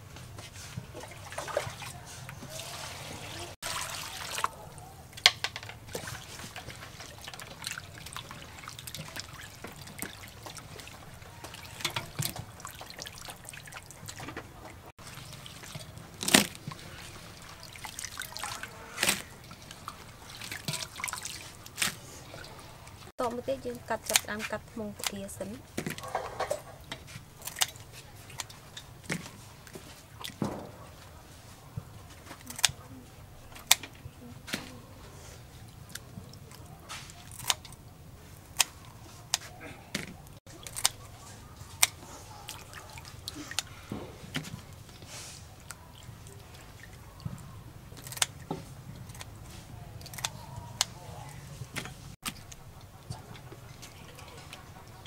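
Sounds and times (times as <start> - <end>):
scissors snipping prawn shells: 37.0 - 37.8, 47.9 - 51.0.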